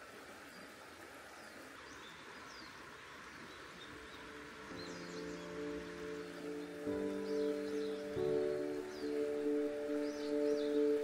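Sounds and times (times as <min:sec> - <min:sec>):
mountain stream rushing: 0:00.0 - 0:11.0
soft chime-like music: 0:04.4 - 0:11.0.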